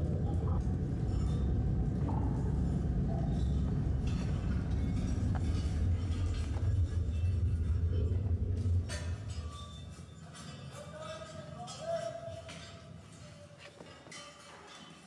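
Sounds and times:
steady low rumble: 0.0s - 10.4s.

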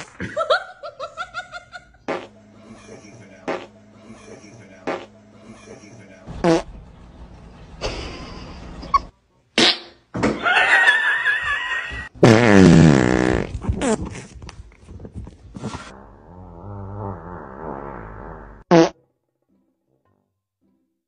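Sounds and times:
fart sounds: 2.1s - 2.3s, 3.5s - 3.7s, 4.8s - 5.1s, 6.4s - 6.7s, 9.6s - 10.0s, 12.2s - 14.4s, 15.6s - 19.0s.

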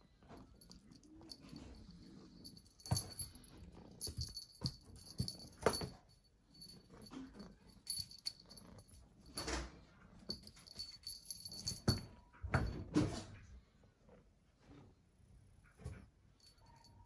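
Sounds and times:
paws knocking and scuffling toy: 0.2s - 13.5s.

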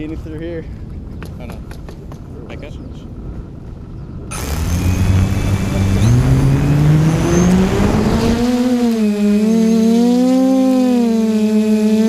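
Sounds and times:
propeller wash rushing: 4.3s - 9.9s
quadcopter motors whining: 4.3s - 12.0s.

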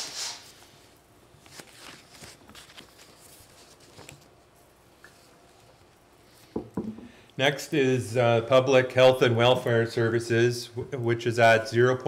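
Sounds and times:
faint clicks and rustles: 1.4s - 6.6s.

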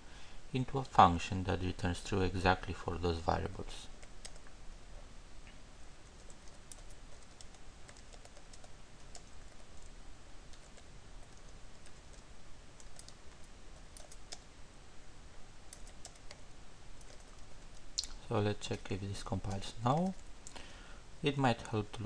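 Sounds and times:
typing on computer keyboard: 6.1s - 9.9s, 10.5s - 12.2s, 12.8s - 14.5s, 15.7s - 16.4s, 17.0s - 17.8s.

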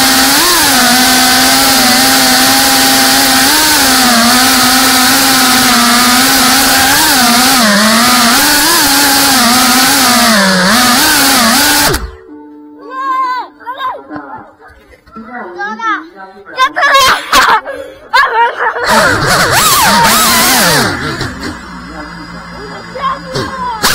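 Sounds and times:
drone motors whining: 0.0s - 12.2s, 18.8s - 23.9s.

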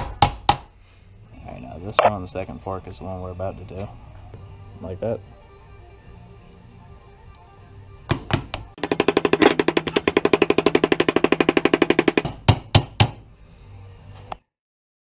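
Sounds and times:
hammer striking metal punch: 0.0s - 0.7s, 8.1s - 13.2s
faint background music: 0.0s - 14.5s.

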